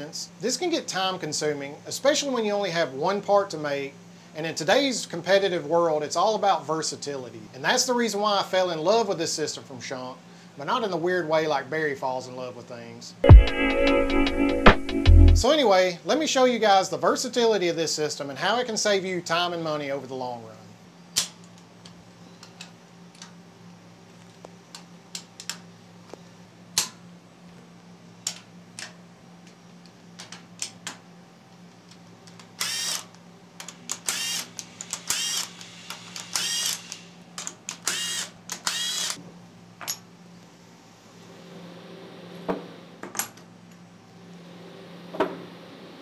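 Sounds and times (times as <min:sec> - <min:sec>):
cordless drill whining: 0:32.6 - 0:33.0, 0:34.0 - 0:37.1, 0:37.8 - 0:39.2.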